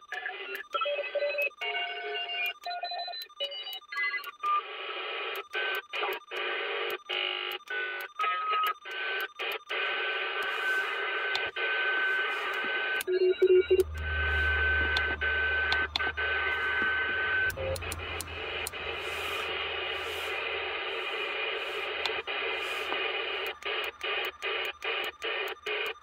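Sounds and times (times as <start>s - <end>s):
radio static and hiss: 4.6s - 26.0s
sharp clicks: 12.4s - 26.0s.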